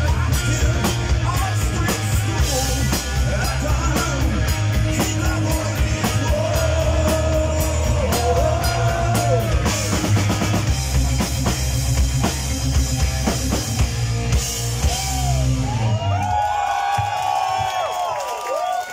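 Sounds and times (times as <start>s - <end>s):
live heavy metal band playing: 0.0s - 17.1s
audience cheering and whooping: 6.4s - 10.1s, 14.8s - 18.9s.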